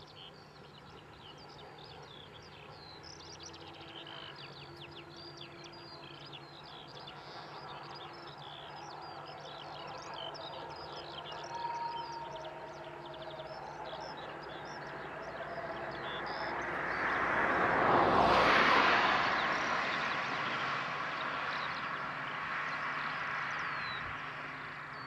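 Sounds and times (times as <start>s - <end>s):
songbirds chirping and trilling: 0.0s - 25.0s
distant steam train rumble: 0.5s - 22.4s
long whistle-like tone: 11.2s - 16.6s.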